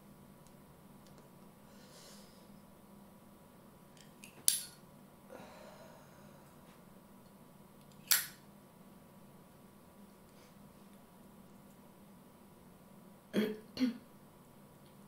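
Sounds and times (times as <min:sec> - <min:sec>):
breathy exhale of smoke: 0:01.6 - 0:02.5
lighter clicks: 0:08.0 - 0:08.4.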